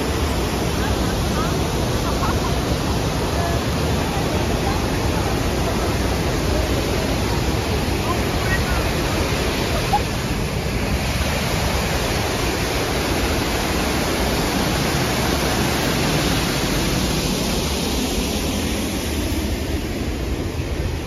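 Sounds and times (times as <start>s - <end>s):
waterfall rushing: 0.0s - 21.0s.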